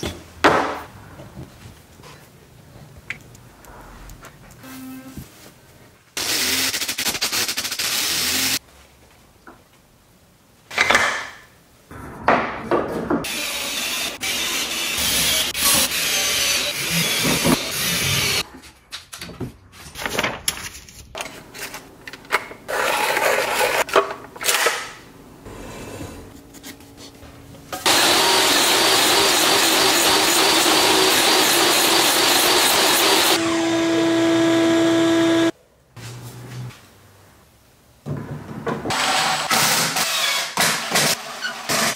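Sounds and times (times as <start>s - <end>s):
tools scraping and knocking on wood: 18.4s - 24.3s
power tool running: 27.8s - 35.5s.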